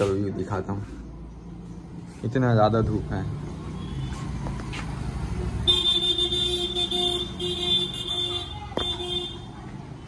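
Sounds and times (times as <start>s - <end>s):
street traffic rumble: 0.0s - 10.0s
vehicle horn honking: 5.7s - 9.5s.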